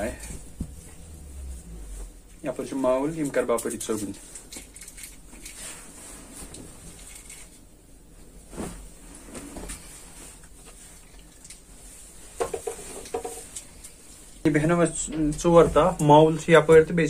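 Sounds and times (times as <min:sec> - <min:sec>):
cloth rustling: 0:00.0 - 0:03.1, 0:05.2 - 0:14.4
cloth brushing: 0:00.4 - 0:02.9, 0:08.1 - 0:11.0.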